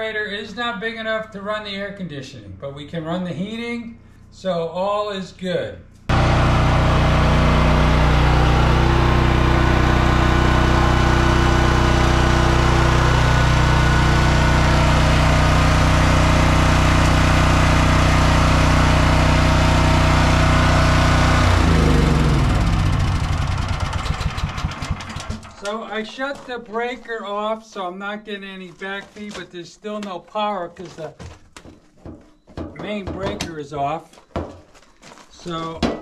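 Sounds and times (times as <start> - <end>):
generator engine running: 6.1 - 25.8.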